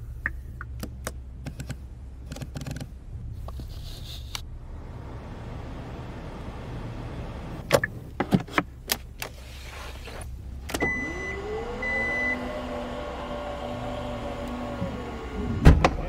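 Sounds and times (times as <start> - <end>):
thump: 15.6 - 16.0.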